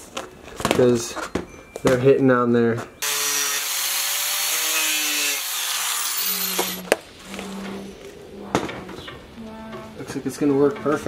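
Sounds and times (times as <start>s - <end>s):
power tool grinding metal: 3.0s - 6.8s
motor winding down whine: 5.2s - 6.8s.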